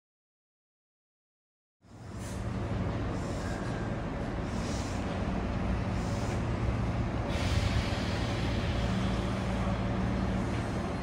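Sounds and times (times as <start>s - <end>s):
train equipment humming: 1.9s - 11.0s
air hiss: 7.3s - 9.7s.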